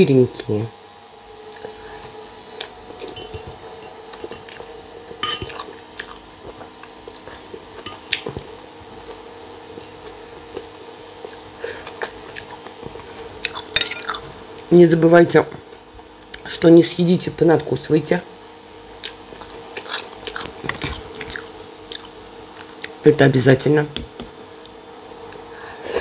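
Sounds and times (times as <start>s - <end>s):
quiet chewing: 4.2s - 9.2s, 9.8s - 14.7s, 19.0s - 23.0s
fork clinking on glass and plate: 5.2s - 5.6s.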